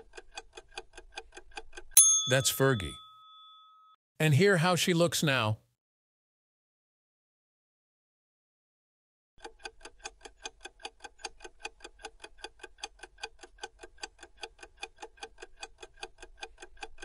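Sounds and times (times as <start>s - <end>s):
clock ticking: 9.4s - 17.0s.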